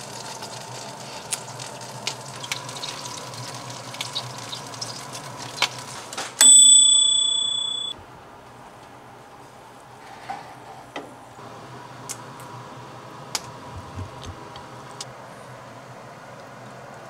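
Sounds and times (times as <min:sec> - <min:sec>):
faint steady hum: 0:06.4 - 0:10.0.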